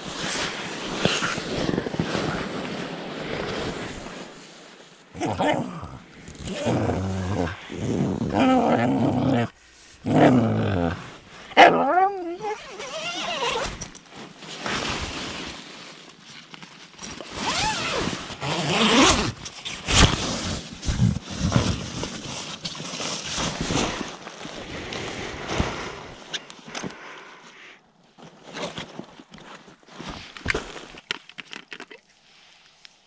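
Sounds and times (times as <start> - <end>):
tent zipper opening: 0.0 - 4.5, 5.2 - 15.7, 16.5 - 24.6
nylon fabric rustling: 0.0 - 24.7
gear being shifted: 12.3 - 15.1, 16.5 - 21.9.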